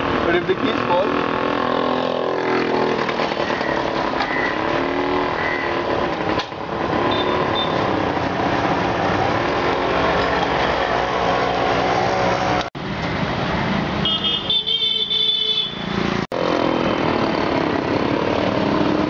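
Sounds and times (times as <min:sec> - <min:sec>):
street traffic engines: 0:00.0 - 0:19.0
vehicle horn: 0:14.0 - 0:15.9.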